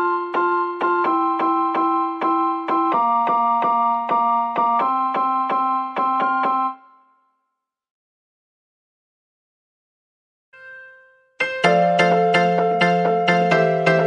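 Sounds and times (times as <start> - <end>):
keyboard music with piano chords: 0.0 - 7.4, 10.6 - 14.0.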